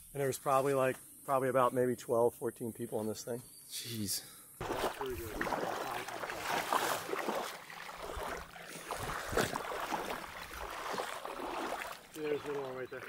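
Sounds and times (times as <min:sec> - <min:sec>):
footsteps splashing in shallow water: 0:04.6 - 0:13.0.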